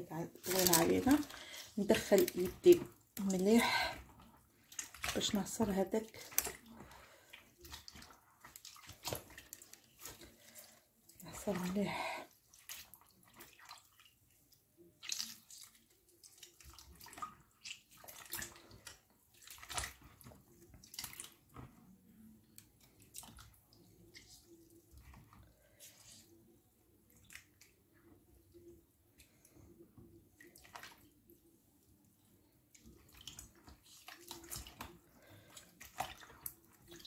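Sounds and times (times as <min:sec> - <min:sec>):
water sloshing in bowl: 0:00.0 - 0:26.5, 0:27.1 - 0:31.4, 0:32.7 - 0:37.0.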